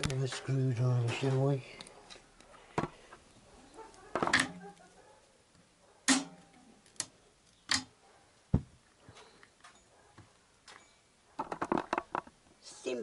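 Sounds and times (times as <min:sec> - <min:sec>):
deeper knock: 0:08.5 - 0:08.8.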